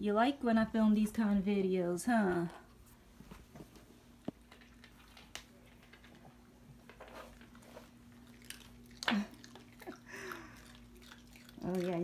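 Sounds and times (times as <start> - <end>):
dogs crunching treats: 4.3 - 12.0.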